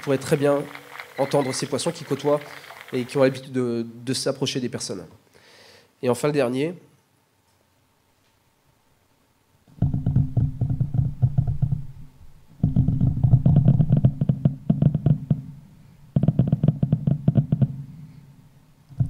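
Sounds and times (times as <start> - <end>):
muffled firework thuds and crackles: 0.0 - 3.1, 9.8 - 17.8.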